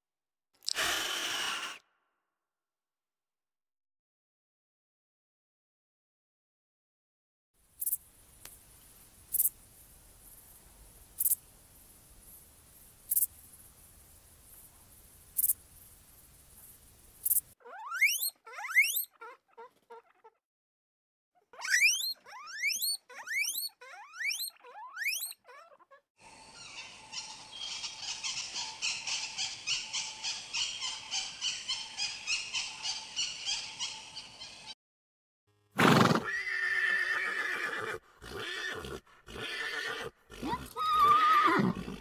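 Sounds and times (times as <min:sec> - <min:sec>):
guinea pigs squeaking: 0:17.2 - 0:20.4, 0:21.5 - 0:26.0
guineafowl rattling chatter: 0:26.6 - 0:34.7
horse neighing: 0:35.8 - 0:42.0.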